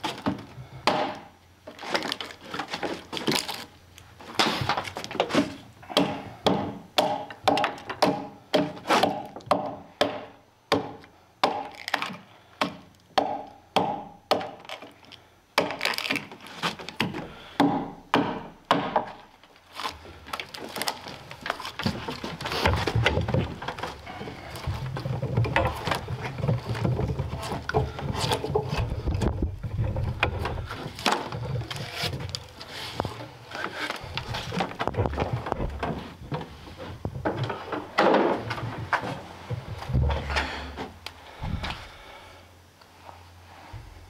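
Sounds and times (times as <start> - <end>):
axe chopping into log: 0.2 - 1.3, 5.4 - 14.7, 17.0 - 19.2
wood chips splitting off: 19.1 - 40.7
low rumble with scraping: 22.3 - 42.1.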